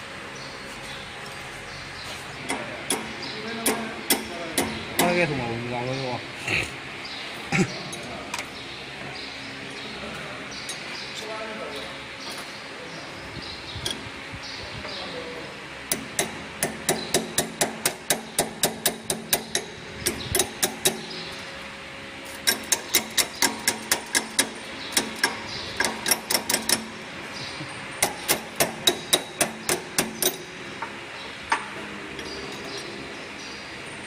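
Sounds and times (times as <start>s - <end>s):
wrench knocking on metal screws: 15.9s - 21.1s, 22.4s - 26.9s, 28.0s - 30.9s.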